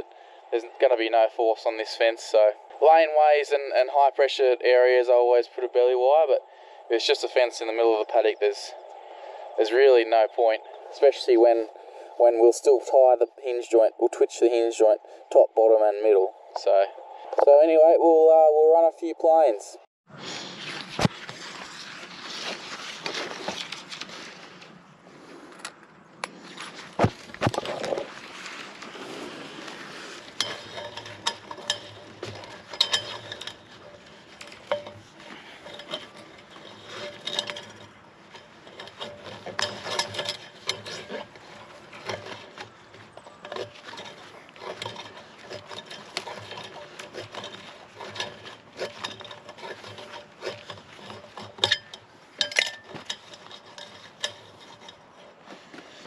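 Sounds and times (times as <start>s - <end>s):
wire scraping on metal: 20.3s - 56.0s.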